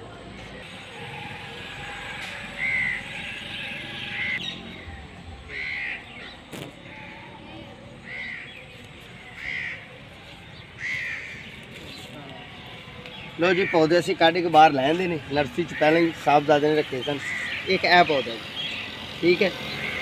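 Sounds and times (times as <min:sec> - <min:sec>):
bird calling: 0:00.7 - 0:04.9, 0:15.2 - 0:20.0.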